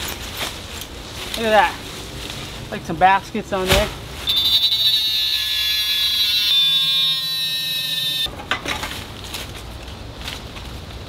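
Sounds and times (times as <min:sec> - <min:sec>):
saw screeching through metal: 0:04.3 - 0:08.3.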